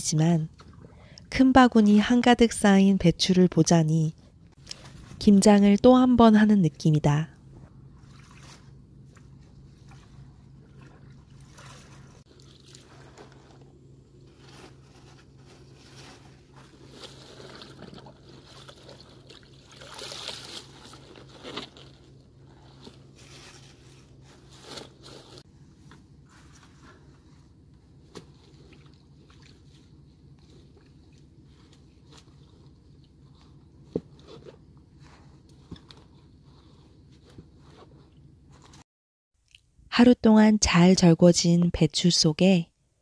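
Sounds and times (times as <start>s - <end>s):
faint low hum: 0.0s - 38.8s
water sloshing and dripping: 0.5s - 1.2s, 7.6s - 24.0s, 28.0s - 34.0s
wet leaves rustling and squeaking: 14.3s - 25.4s.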